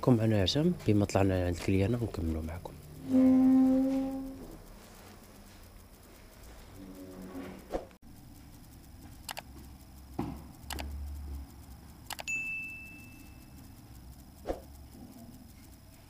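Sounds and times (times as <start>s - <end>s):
sharp click: 8.8s - 15.9s.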